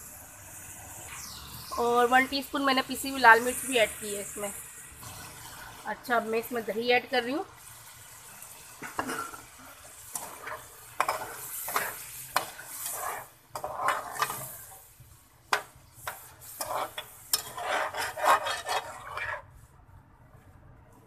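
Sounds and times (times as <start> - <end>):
food sizzling: 0.0 - 19.6
metal spatula scraping a pot: 8.8 - 14.8, 15.5 - 19.6.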